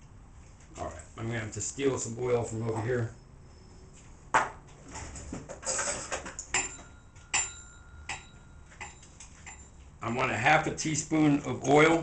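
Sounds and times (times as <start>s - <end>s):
metallic clinks: 5.7s - 10.0s
sharp knock of utensils: 6.5s - 9.6s.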